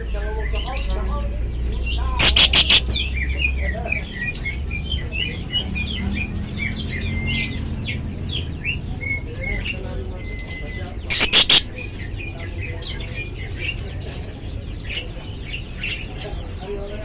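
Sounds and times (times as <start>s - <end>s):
harsh bird calls: 0.0s - 17.0s
lovebird chirping: 2.2s - 3.0s, 11.1s - 11.8s.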